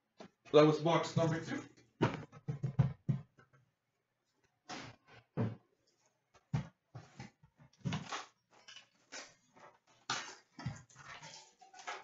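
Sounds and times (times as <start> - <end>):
cardboard boxes knocking: 2.0 - 3.3.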